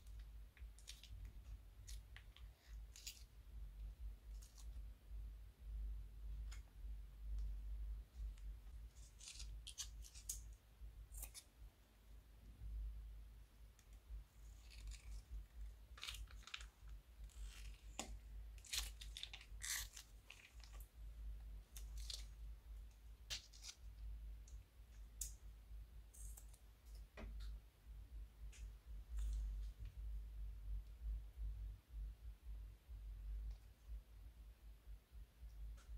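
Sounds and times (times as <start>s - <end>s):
faint low hum: 0.0s - 35.9s
plastic piping bags crinkling: 14.6s - 20.9s.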